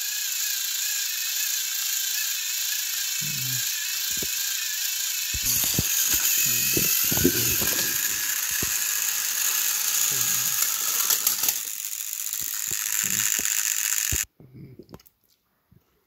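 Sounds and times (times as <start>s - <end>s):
toy train motors whirring: 0.0s - 14.3s
toy train clattering off track: 5.4s - 14.2s.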